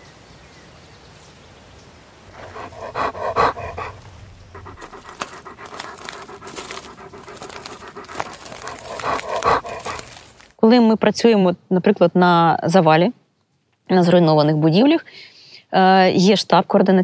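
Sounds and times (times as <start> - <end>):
dog panting: 2.3 - 10.4
footsteps crunching over debris: 2.4 - 10.6.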